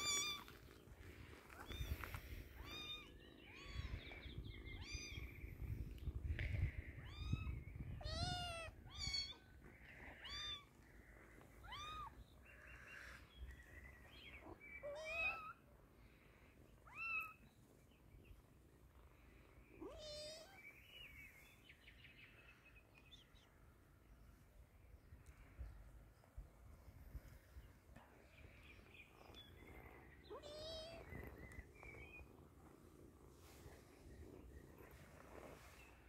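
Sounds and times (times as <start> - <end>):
kitten meowing: 0.0 - 0.6, 1.6 - 4.0, 4.7 - 5.3, 7.1 - 9.4, 11.6 - 12.2, 19.8 - 20.6, 30.3 - 31.2.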